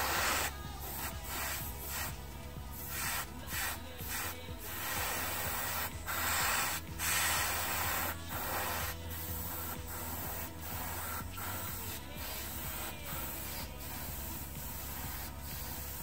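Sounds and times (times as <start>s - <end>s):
airbrush hissing: 0.0s - 16.0s.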